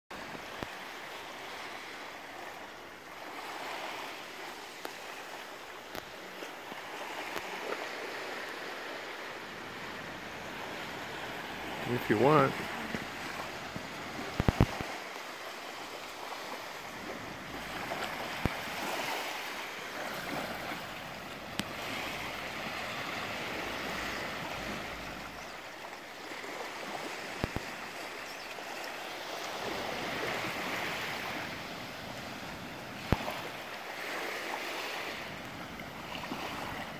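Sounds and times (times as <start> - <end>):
small waves lapping on shore: 0.1 - 36.9.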